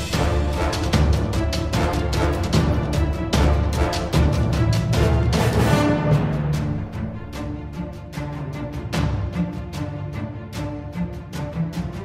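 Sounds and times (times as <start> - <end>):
fast steady drum beat: 0.0 - 7.3.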